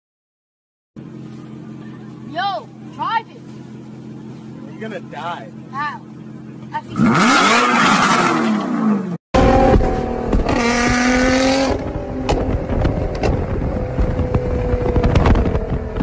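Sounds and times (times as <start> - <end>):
car engine revving: 1.0 - 16.0
exhaust cracks and pops: 9.4 - 16.0.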